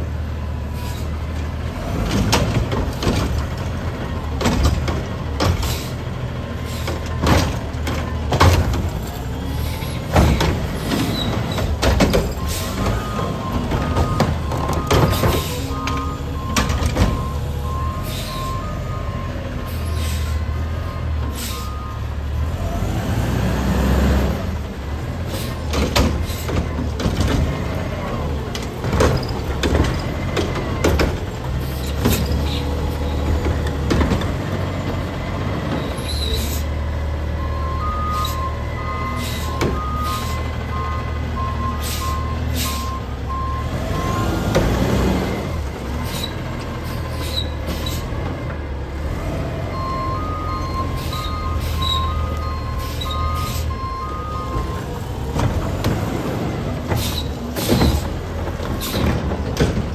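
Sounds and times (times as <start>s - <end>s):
garbage truck diesel engine revving: 0.0s - 59.9s
hydraulic arm clanking: 50.4s - 59.9s.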